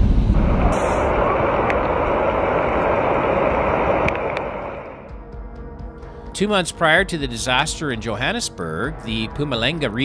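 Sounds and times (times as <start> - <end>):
heavy rain: 0.0 - 5.1
low rumble: 0.0 - 6.0
floodwater rushing: 0.3 - 5.1.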